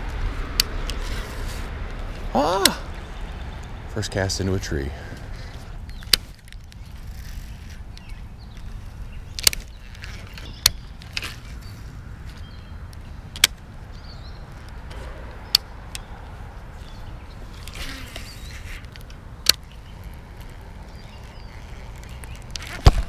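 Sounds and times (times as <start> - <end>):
wind rumble on microphone: 5.1 - 23.0.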